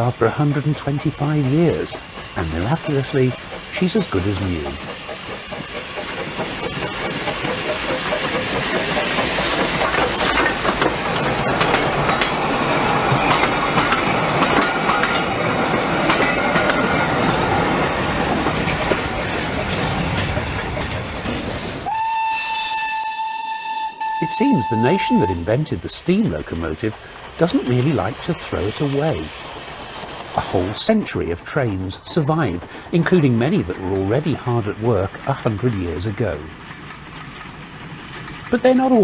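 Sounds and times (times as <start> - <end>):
train wheels clicking over rail joints: 0.0 - 22.0, 24.5 - 39.0
steam hiss: 0.0 - 39.0
steam whistle: 21.8 - 25.5.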